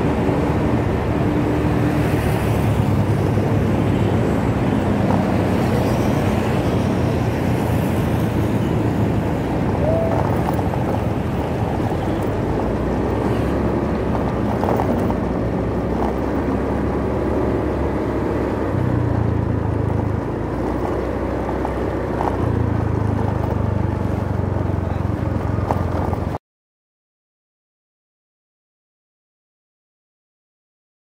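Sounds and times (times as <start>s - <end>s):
wind rush on microphone: 0.0s - 17.4s.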